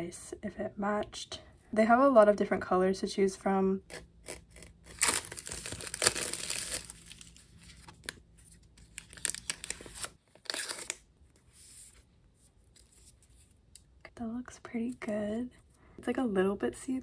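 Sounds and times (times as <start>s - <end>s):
shrink wrap crinkling and tearing: 3.9s - 11.1s.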